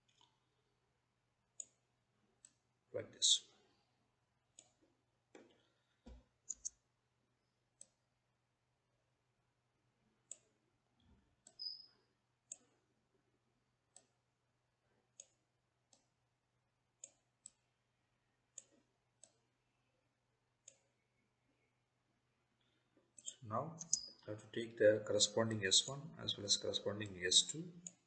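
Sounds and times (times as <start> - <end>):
computer mouse clicking: 6.4 - 6.8, 7.8 - 8.0, 10.2 - 10.6, 11.4 - 11.9, 15.1 - 16.1, 17.0 - 17.6, 18.5 - 19.4, 20.6 - 21.0, 23.2 - 24.2.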